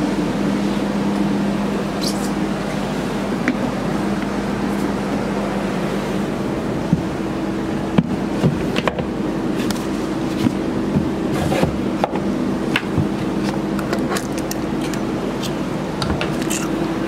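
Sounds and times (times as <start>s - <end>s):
low steady hum: 0.0s - 17.0s
boots knocking and clattering: 6.9s - 7.2s, 10.4s - 13.7s.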